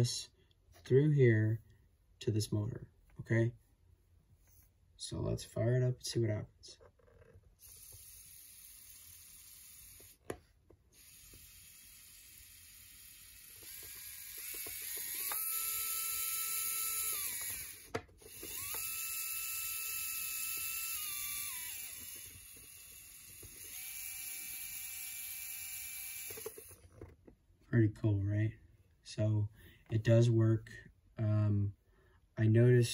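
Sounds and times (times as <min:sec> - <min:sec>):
small electric motor whining: 0:07.6 - 0:27.1.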